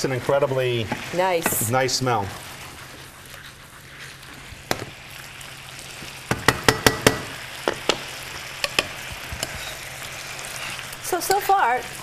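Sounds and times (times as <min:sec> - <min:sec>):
food sizzling in skillet: 0:00.0 - 0:12.0
utensils clacking against pan: 0:00.8 - 0:01.8, 0:06.3 - 0:09.9.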